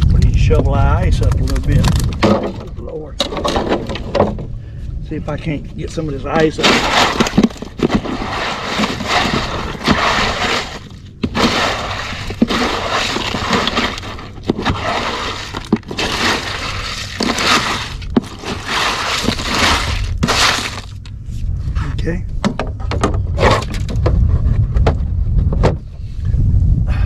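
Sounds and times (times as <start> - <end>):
ice crunching and scraping: 0.0 - 4.4, 5.4 - 21.1.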